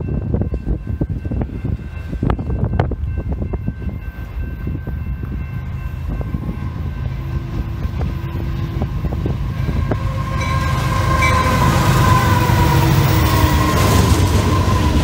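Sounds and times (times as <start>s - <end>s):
diesel locomotives approaching: 0.0s - 15.0s
wind buffeting microphone: 0.0s - 15.0s
train horn chord: 6.2s - 15.0s.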